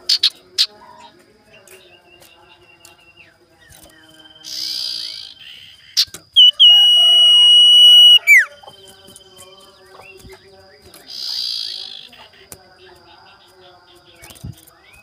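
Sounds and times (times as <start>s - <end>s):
loud high whistle: 6.4s - 8.5s.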